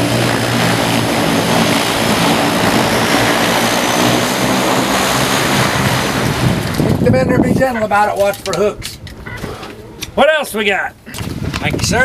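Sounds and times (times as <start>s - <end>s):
propeller plane engine drone: 0.0s - 7.0s.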